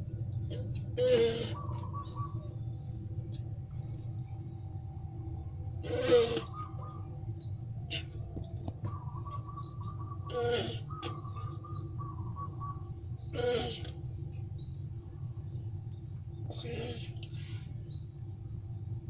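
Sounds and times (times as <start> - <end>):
steady low hum: 0.0 - 19.0
tortoise breathy calls: 0.1 - 2.9, 5.7 - 14.4, 16.4 - 18.1
small bird chirping: 8.8 - 13.9, 16.5 - 18.4.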